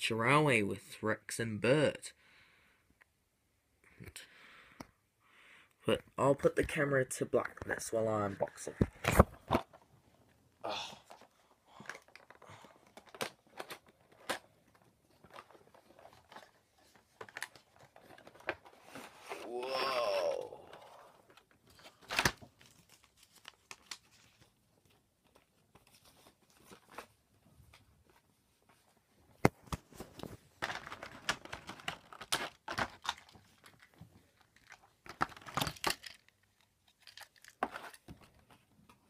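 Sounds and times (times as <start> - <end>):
packaging tearing and crinkling: 21.7 - 24.5, 30.6 - 36.3.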